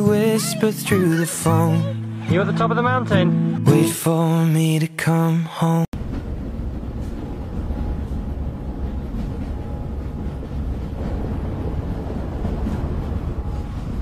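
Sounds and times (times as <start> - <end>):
music: 0.0 - 5.0
low rumbling noise: 6.0 - 14.0.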